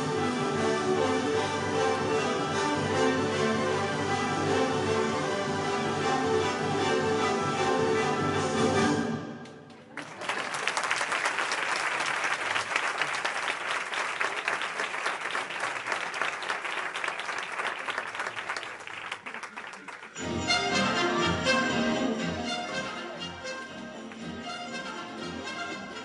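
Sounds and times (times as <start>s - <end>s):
music: 0.0s - 9.9s, 20.0s - 26.0s
audience applauding: 9.7s - 20.3s.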